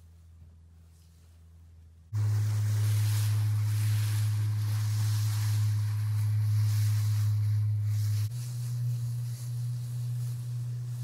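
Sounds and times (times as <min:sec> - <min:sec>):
sea noise: 0:02.2 - 0:08.3.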